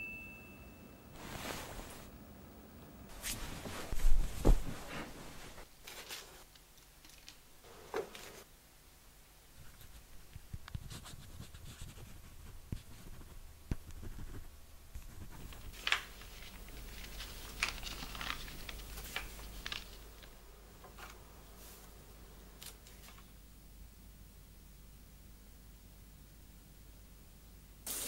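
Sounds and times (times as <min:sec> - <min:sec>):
paper rustling and folding: 0:03.2 - 0:08.5, 0:14.0 - 0:22.0, 0:22.6 - 0:23.3.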